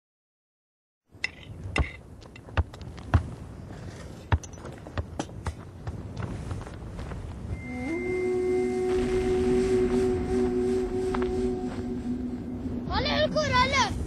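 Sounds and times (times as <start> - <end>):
low background hiss: 7.5 - 14.0.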